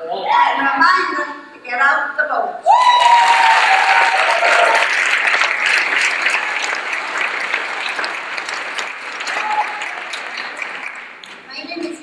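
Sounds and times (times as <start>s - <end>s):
audience applauding: 2.7s - 11.5s.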